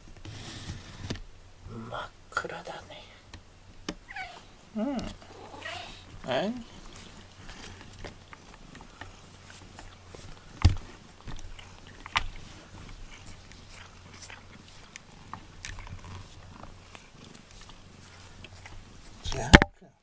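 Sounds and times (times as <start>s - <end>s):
cat purring: 4.1s - 19.3s.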